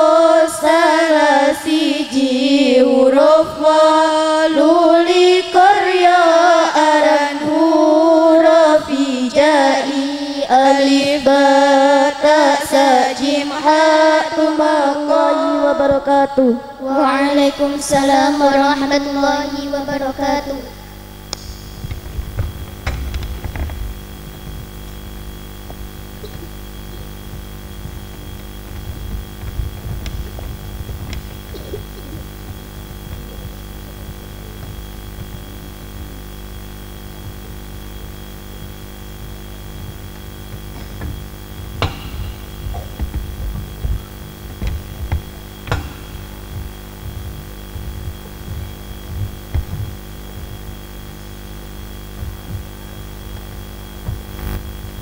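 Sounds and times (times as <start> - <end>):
electrical mains hum: 0.0 - 55.0
low thuds: 21.4 - 55.0.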